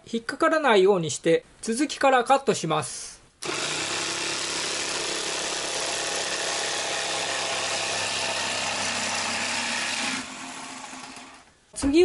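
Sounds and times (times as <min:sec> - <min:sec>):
electric jigsaw sawing plywood: 0:03.4 - 0:11.5.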